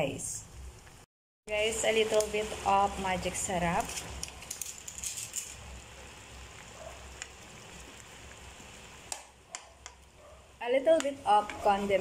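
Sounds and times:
stew bubbling and crackling: 4.0s - 12.0s.

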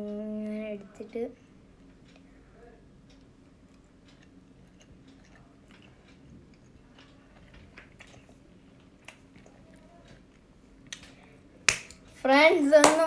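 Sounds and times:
close-up chewing: 3.1s - 11.0s.

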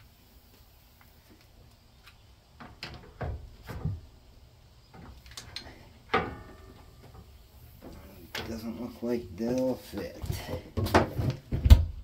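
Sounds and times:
metal clunks and knocks: 2.6s - 4.1s, 6.0s - 8.6s, 10.3s - 12.0s.

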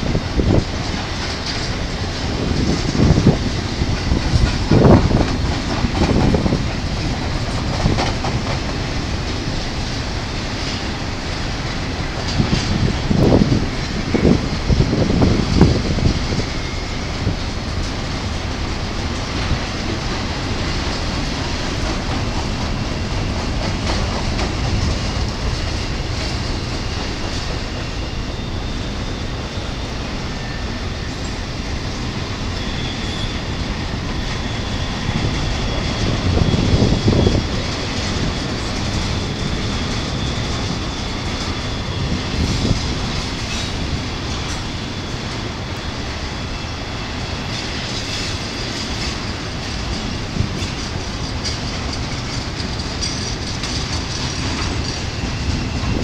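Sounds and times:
clickety-clack over rail joints: 0.0s - 56.0s
train wheels rumbling on rail: 0.0s - 56.0s
high wheel squeal: 10.5s - 56.0s.

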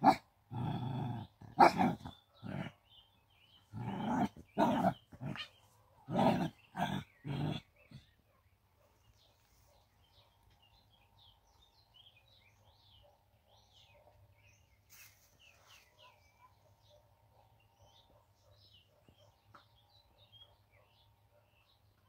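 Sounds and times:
dog growling and barking: 0.0s - 2.8s, 3.7s - 8.2s.

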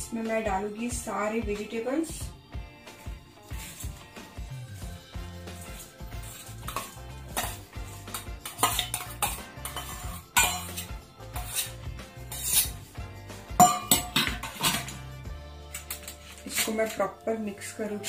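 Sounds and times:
background music: 0.0s - 18.0s
metal spoon scraping steel bowl: 3.0s - 17.2s.

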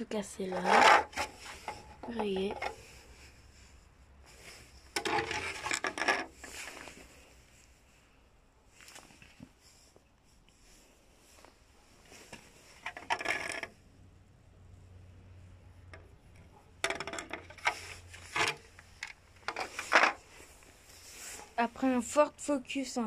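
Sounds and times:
plastic hubcaps scraping and clattering: 0.0s - 3.7s, 4.3s - 7.3s, 11.3s - 13.8s, 15.9s - 21.6s.

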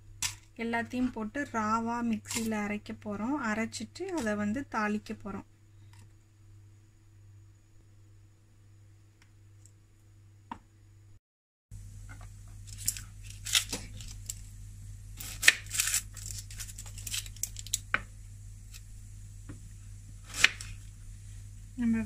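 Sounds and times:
onion skin tearing and crinkling: 12.5s - 18.9s, 20.2s - 21.0s.

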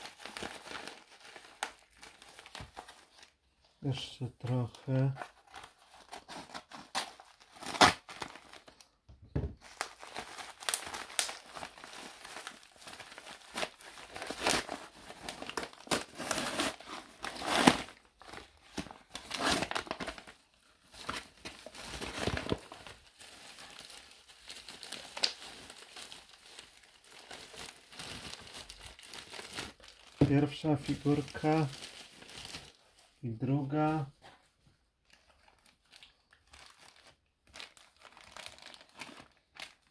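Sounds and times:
packaging crinkling and rustling: 0.0s - 39.9s
envelope being cut: 5.5s - 8.4s.

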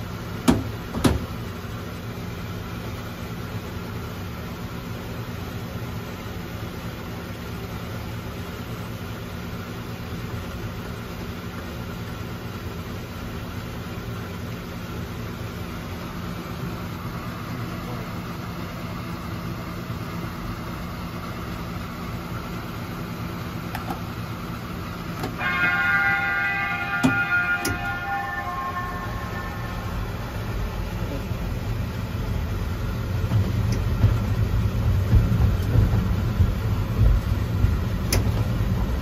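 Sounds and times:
miniature train rumbling: 23.5s - 39.0s
steady higher tones: 24.5s - 33.2s.

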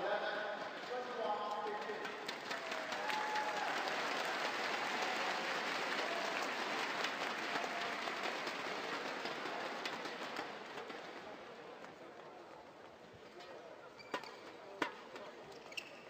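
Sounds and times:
crowd applauding: 1.5s - 11.4s.

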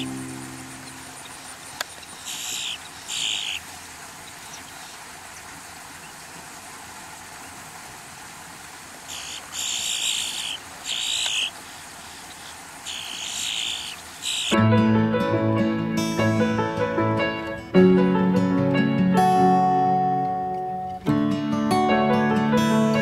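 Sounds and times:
steady outdoor hiss: 0.0s - 14.6s
bird giving harsh raspy calls: 0.8s - 3.6s, 9.1s - 14.6s.

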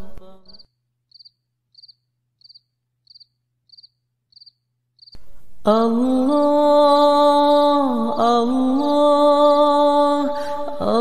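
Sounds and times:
cricket chirping: 0.5s - 5.2s.

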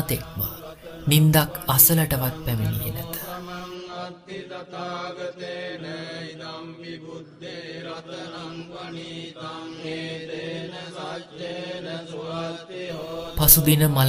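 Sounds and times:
chanting: 0.0s - 14.0s.

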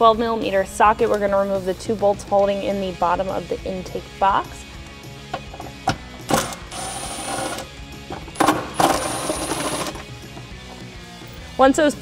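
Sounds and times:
impact wrench whining: 5.3s - 10.8s.

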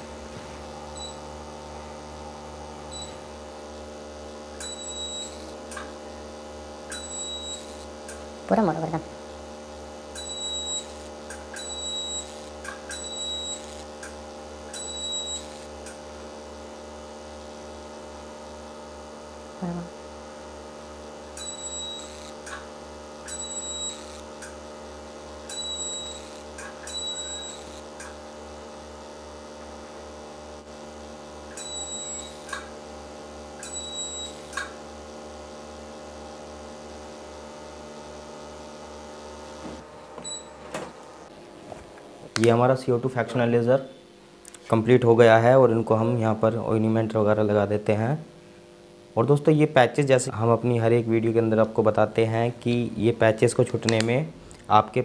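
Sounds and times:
laser machine humming: 0.0s - 44.5s
short high beeps with clicks: 2.9s - 3.2s.

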